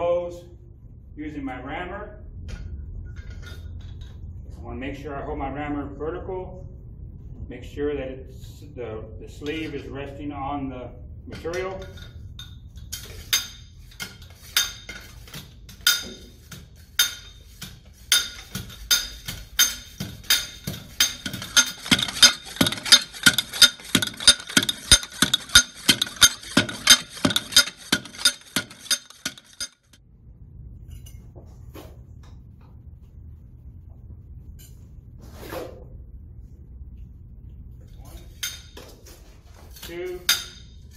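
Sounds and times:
rammer striking steel mold: 15.8s - 30.0s.

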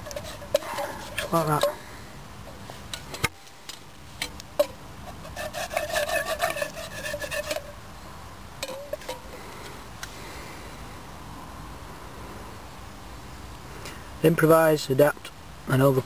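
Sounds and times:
wooden stick scraping steel pot: 0.0s - 1.9s, 2.5s - 7.8s, 8.6s - 9.4s.

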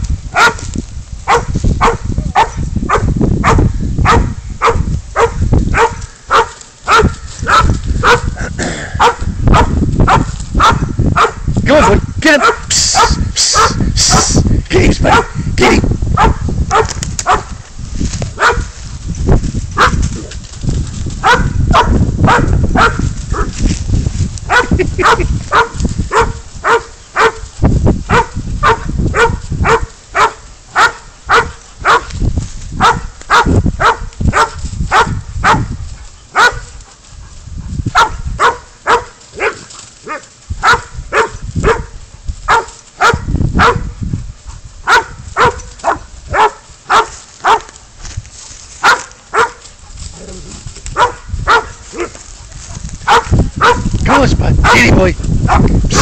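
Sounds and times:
dog barking: 0.3s - 0.6s, 1.3s - 14.4s, 15.0s - 15.4s, 16.2s - 17.6s, 18.4s - 18.7s, 19.8s - 20.0s, 21.2s - 23.5s, 24.5s - 27.4s, 28.1s - 32.1s, 32.8s - 35.7s, 36.3s - 36.7s, 37.9s - 44.0s, 44.8s - 47.8s, 48.8s - 49.6s, 51.0s - 53.9s, 54.6s - 55.8s.

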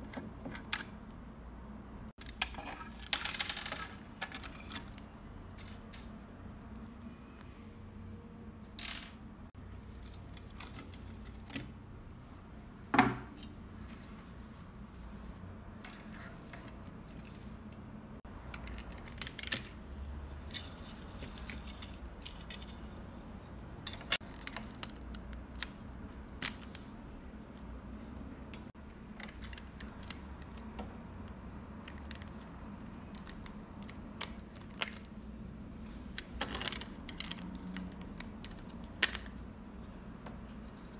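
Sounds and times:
plastic toy parts clicking: 18.4s - 19.8s.

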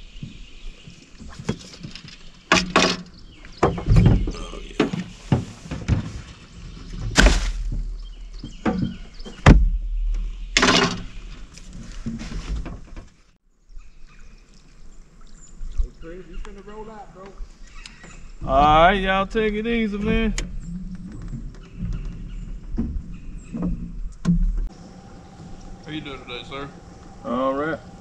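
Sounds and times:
knocks and thumps in boat: 0.2s - 13.2s, 18.0s - 27.2s
low rumble: 22.2s - 28.0s.

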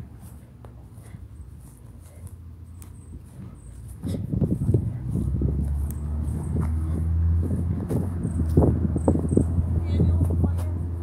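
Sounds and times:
wind buffeting microphone: 3.2s - 11.0s.

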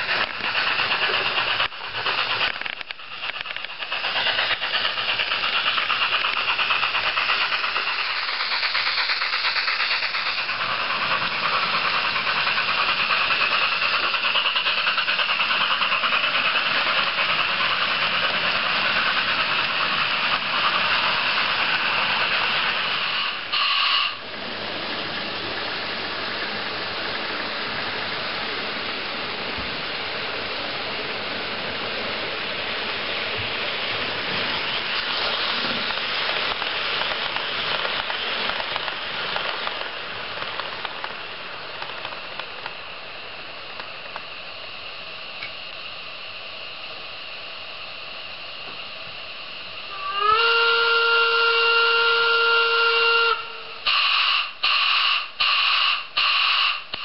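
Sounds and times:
model locomotive steam hiss: 0.0s - 57.0s
model trains running on track: 0.0s - 57.0s
brief shrill tone: 23.5s - 24.2s.

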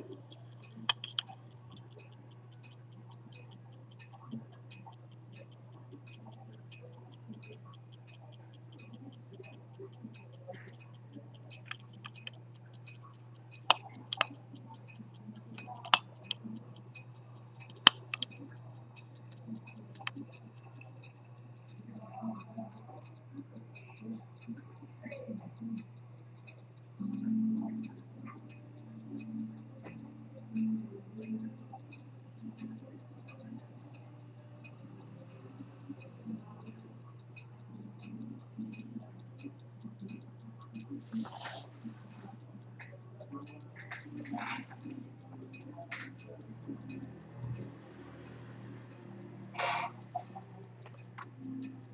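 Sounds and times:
pocket watch ticking: 0.0s - 51.9s
metal watch case clicking: 0.8s - 1.3s.

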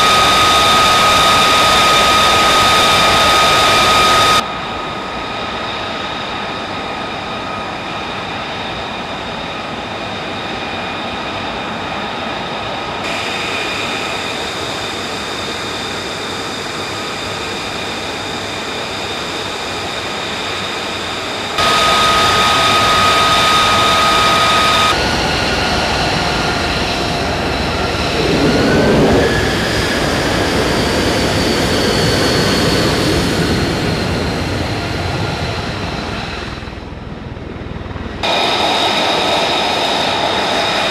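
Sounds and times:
jet engine whine and roar: 0.0s - 40.9s
deep rumble: 24.8s - 38.3s.

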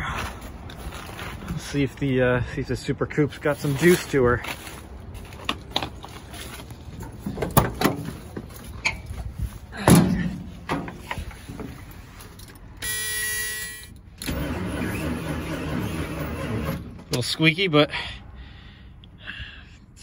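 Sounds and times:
dashboard warning buzzer: 12.8s - 13.9s
starter cranking engine: 14.2s - 17.2s.

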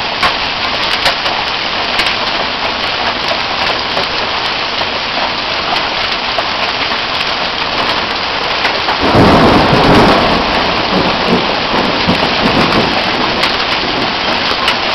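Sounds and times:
heavy rain: 0.0s - 14.9s
thunder clap and rumble: 7.6s - 14.9s.

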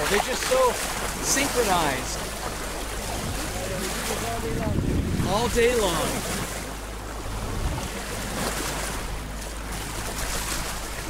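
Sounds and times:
water washing along hull: 0.0s - 11.0s
wind buffeting microphone: 2.2s - 11.0s.

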